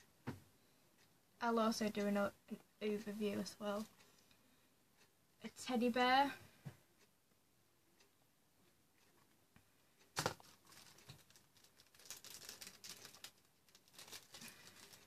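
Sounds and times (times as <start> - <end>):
packaging rustling and crinkling: 10.2 - 15.0.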